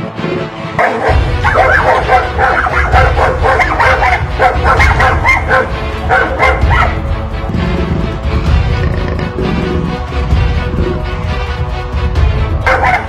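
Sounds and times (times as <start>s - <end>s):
background music: 0.0s - 13.0s
dogs barking: 0.7s - 11.1s, 12.5s - 13.0s.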